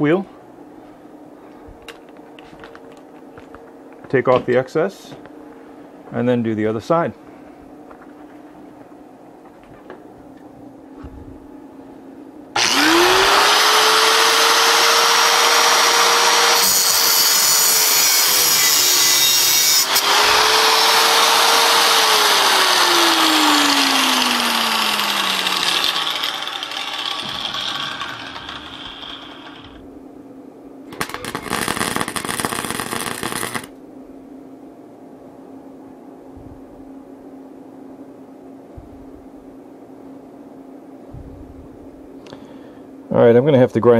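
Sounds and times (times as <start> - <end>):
angle grinder cutting steel: 12.6 - 29.8, 30.9 - 33.7
welding arc crackling: 23.1 - 29.8, 30.9 - 33.8.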